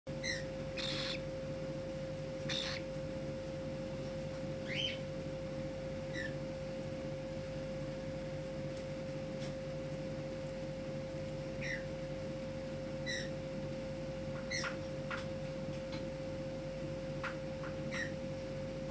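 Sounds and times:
bird chirps: 0:00.2 - 0:01.3, 0:02.5 - 0:02.9, 0:04.6 - 0:05.1
raspy bird calls: 0:00.2 - 0:01.3, 0:02.4 - 0:02.9, 0:04.6 - 0:05.1.

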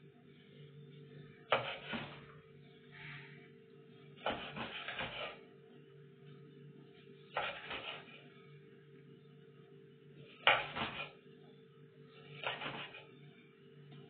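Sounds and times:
steady low hum: 0:00.0 - 0:14.0
knife slicing on cutting board: 0:01.5 - 0:02.2, 0:04.2 - 0:05.4, 0:07.4 - 0:08.1.

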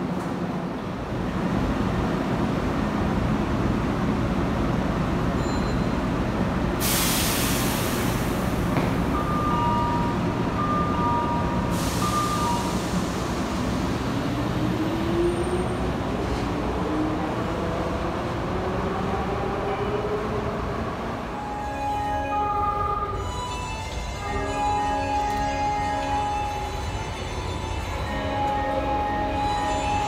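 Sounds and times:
electric train rumble: 0:06.0 - 0:30.0
air hiss: 0:06.8 - 0:08.6.

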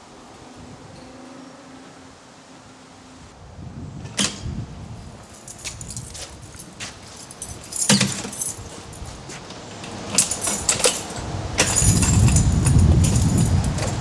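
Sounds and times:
keys jangling: 0:05.1 - 0:14.0.

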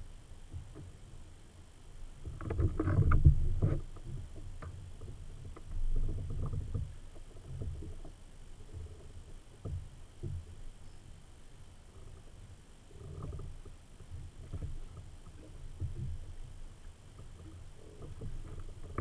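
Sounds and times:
water sloshing against kayak hull: 0:11.9 - 0:19.0.

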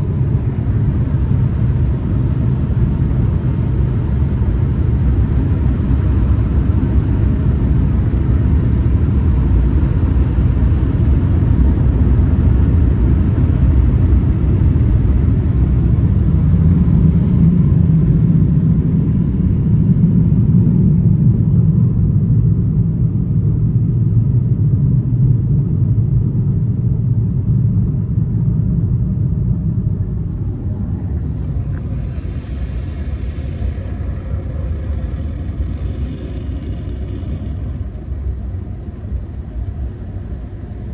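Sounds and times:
car wash machinery and water rumble: 0:00.0 - 0:40.9.

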